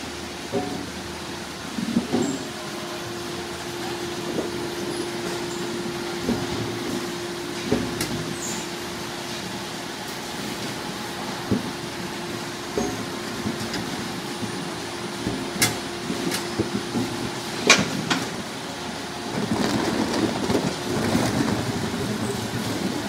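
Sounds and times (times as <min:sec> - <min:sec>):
machinery humming: 0:00.0 - 0:23.0
machinery knocks and clatter: 0:12.7 - 0:18.4.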